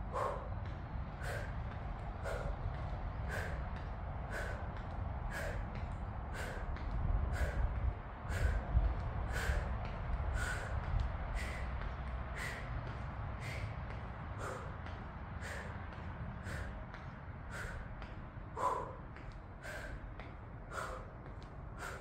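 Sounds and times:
steady low rumble: 0:00.0 - 0:22.0
woman breathing sharply: 0:00.0 - 0:22.0.

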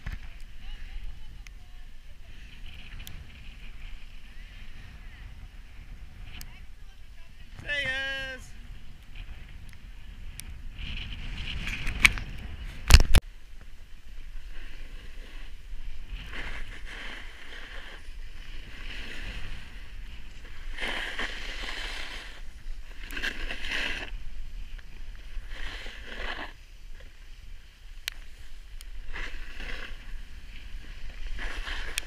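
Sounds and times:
wind rumble on microphone: 0:00.0 - 0:32.0
edges scraping over snow: 0:14.2 - 0:32.0.

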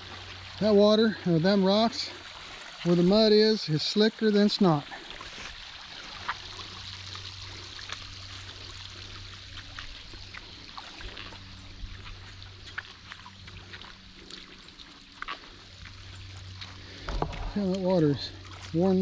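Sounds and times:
small water splashes: 0:00.0 - 0:19.0
water running over rock ledges: 0:00.0 - 0:19.0
steady low hum: 0:04.8 - 0:19.0.

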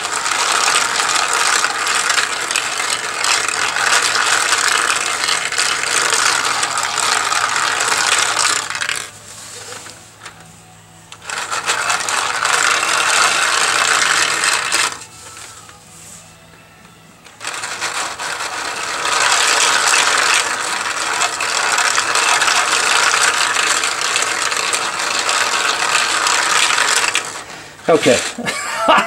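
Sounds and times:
metal balls rattling through marble maze: 0:00.0 - 0:10.3, 0:11.1 - 0:15.5, 0:17.4 - 0:28.5.

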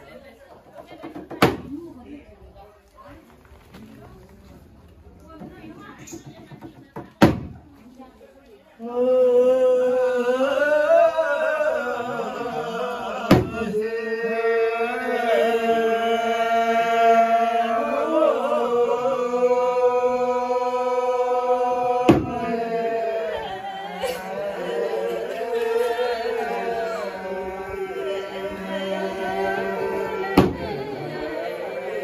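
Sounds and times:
voices chanting in long held notes: 0:08.8 - 0:32.0.

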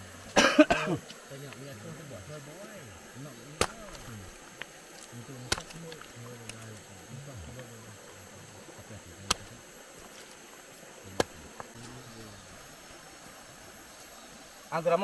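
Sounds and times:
crab shells cracking: 0:03.6 - 0:06.9, 0:09.3 - 0:10.4
low quiet voices: 0:05.0 - 0:10.1, 0:10.8 - 0:12.7.

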